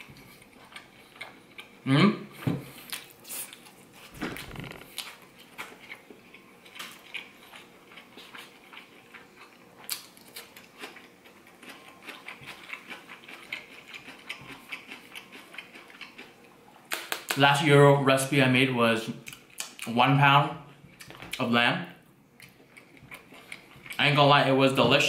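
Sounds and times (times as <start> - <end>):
person chewing food: 0.0 - 1.8, 2.6 - 17.3, 22.3 - 24.1.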